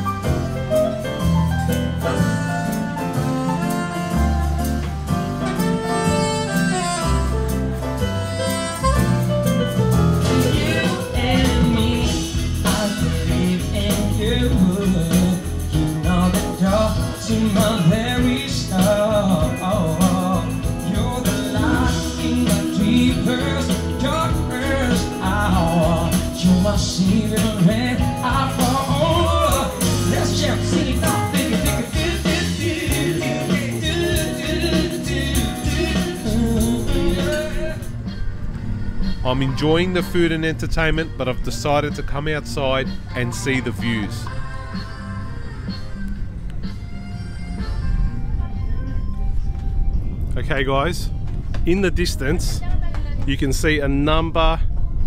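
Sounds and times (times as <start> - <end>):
electronic keyboard: 0.0 - 55.0
steady beat: 8.9 - 37.9
person singing: 10.2 - 38.1.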